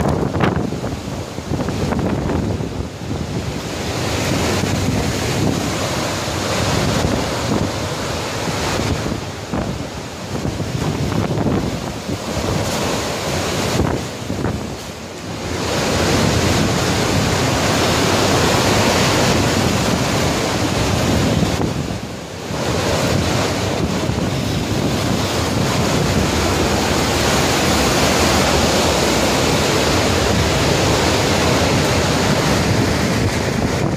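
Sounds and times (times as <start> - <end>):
driving rain: 0.0 - 33.9
strong wind buffeting microphone: 0.0 - 33.9.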